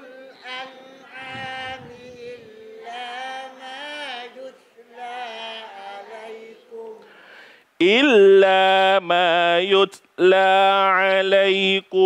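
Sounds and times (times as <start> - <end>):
class chanting recitation: 0.0 - 7.1.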